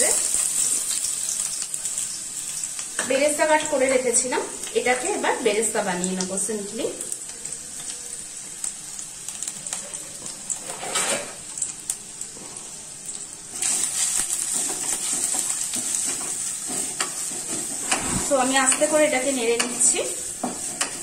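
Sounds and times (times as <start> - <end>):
onions sizzling in oil: 0.0 - 21.0
stirring with wooden spatula: 13.5 - 19.0.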